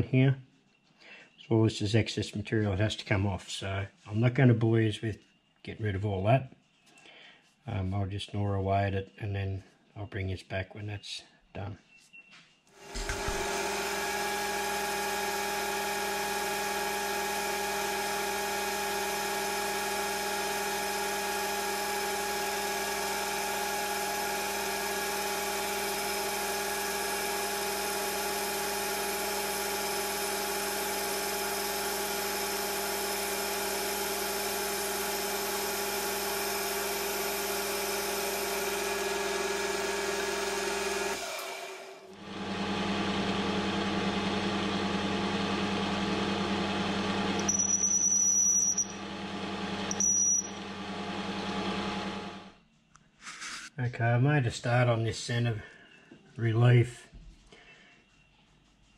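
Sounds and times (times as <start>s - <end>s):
metal lathe cutting steel: 12.8s - 42.7s, 47.1s - 52.4s.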